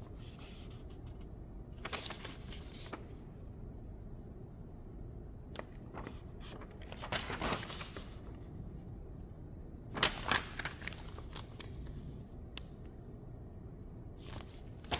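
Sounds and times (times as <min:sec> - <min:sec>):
paper pages rustling: 0:00.0 - 0:03.3, 0:05.6 - 0:08.4, 0:10.0 - 0:12.2, 0:14.2 - 0:14.9.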